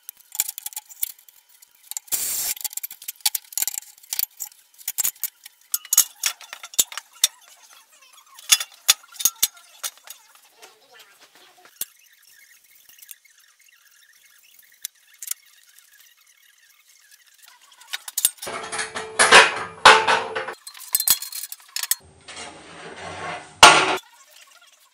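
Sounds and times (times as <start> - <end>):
metal saw horses scraping on concrete: 3.6 - 10.4, 17.8 - 24.0.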